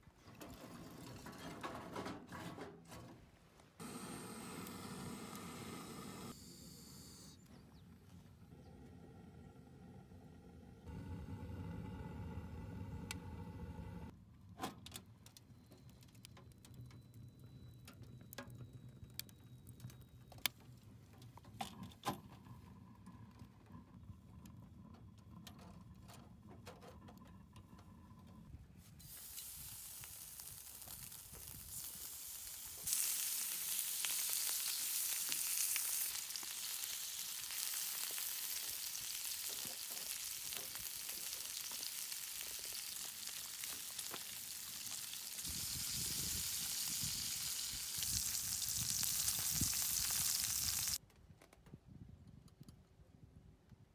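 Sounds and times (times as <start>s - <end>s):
bacon sizzling in a frying pan: 29.0s - 51.0s.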